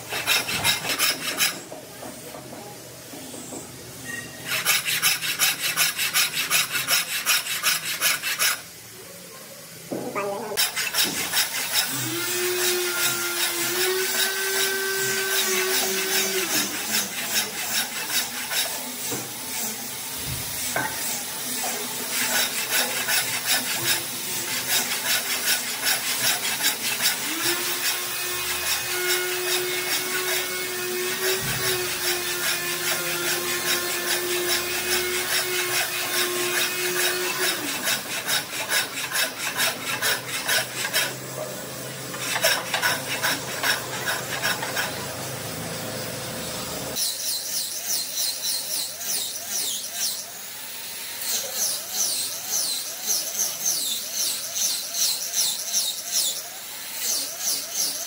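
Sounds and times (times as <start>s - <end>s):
scraping and rubbing against wood: 0.0s - 8.7s, 9.9s - 19.4s, 20.2s - 45.2s
power tool motor hum: 10.6s - 58.0s.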